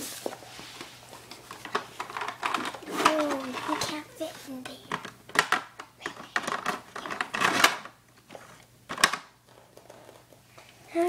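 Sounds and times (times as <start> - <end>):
plastic toys clicking on wooden floor: 1.4 - 4.0, 4.6 - 10.3.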